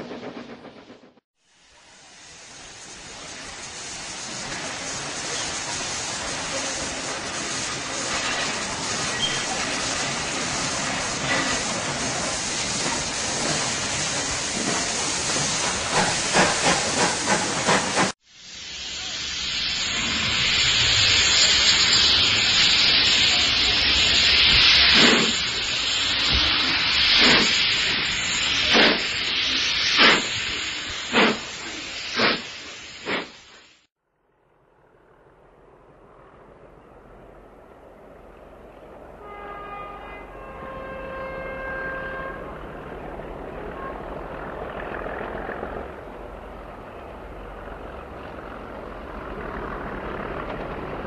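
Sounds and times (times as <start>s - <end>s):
steam hissing: 1.7s - 33.9s
steam locomotive chuffing: 2.2s - 33.7s.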